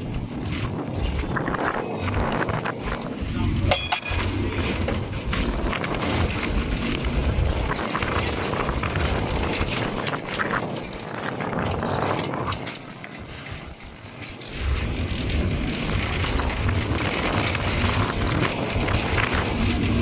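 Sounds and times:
tram wheels rumbling on track: 0.0s - 20.0s.

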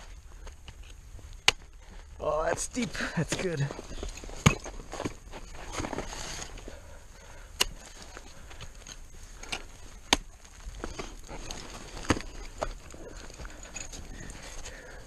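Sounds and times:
crampon kicks: 4.0s - 6.2s
ice axe striking snow: 4.2s - 6.5s.

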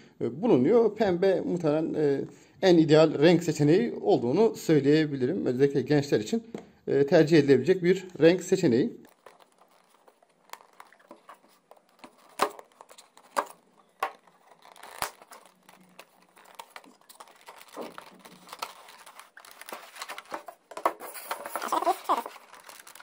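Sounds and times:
paper rustling and crinkling: 9.0s - 23.0s
taps and clicks of packaging: 9.0s - 23.0s.

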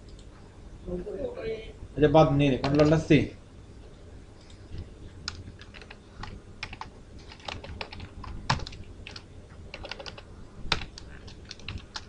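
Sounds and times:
keyboard typing: 2.6s - 3.0s, 4.4s - 12.0s.

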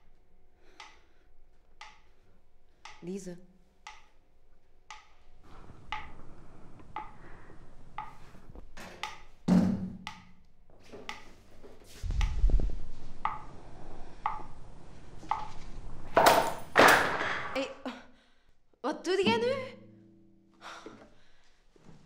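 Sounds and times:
metronome ticking: 1.8s - 2.1s, 3.9s - 4.2s, 4.9s - 5.2s, 5.8s - 6.2s, 8.0s - 8.2s
low rumble: 12.0s - 16.2s.

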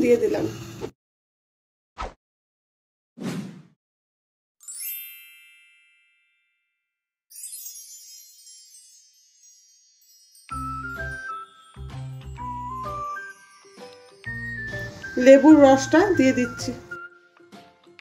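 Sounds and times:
bright chime ringing: 4.6s - 6.7s, 7.3s - 17.1s
shimmering tinkle: 4.6s - 16.6s.

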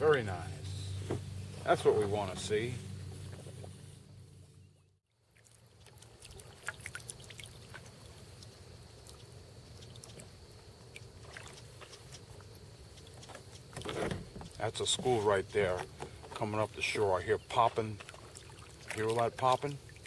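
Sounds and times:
low steady hum: 0.0s - 20.0s
water lapping and trickling: 5.1s - 20.0s.

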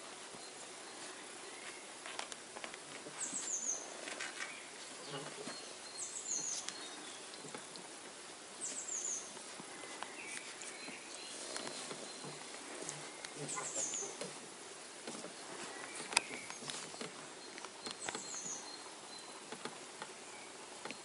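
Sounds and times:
puppies scuffling on bedding: 15.1s - 17.4s.

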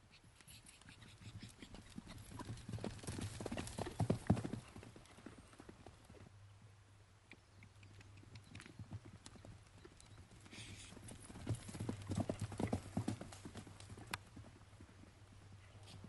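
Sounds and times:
horse hoofbeats on grass: 1.6s - 6.3s, 8.3s - 16.0s.

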